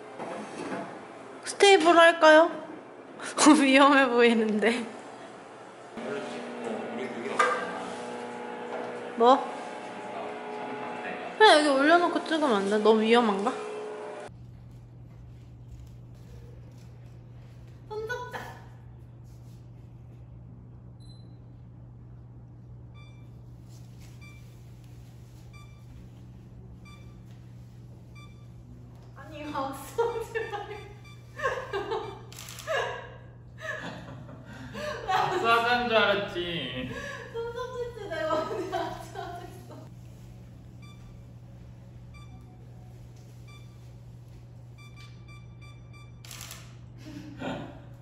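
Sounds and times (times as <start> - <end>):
steady low hum: 0.0 - 48.0
camera beeps: 23.0 - 23.3, 30.0 - 31.4, 32.0 - 32.7, 40.8 - 41.2, 42.1 - 42.6, 44.8 - 46.9
camera shutter firing: 32.3 - 32.7, 46.2 - 46.8.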